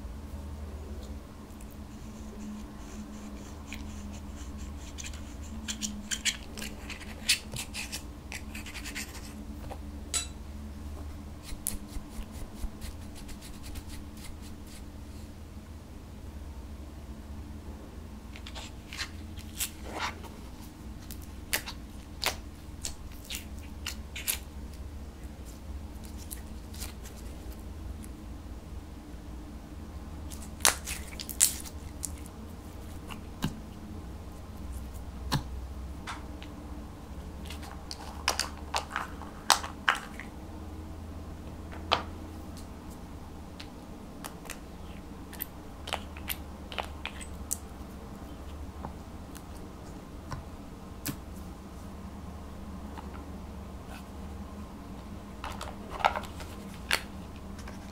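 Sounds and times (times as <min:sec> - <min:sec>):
low steady hum: 0:00.0 - 0:57.9
spoon crushing powder in glass dish: 0:03.6 - 0:09.4.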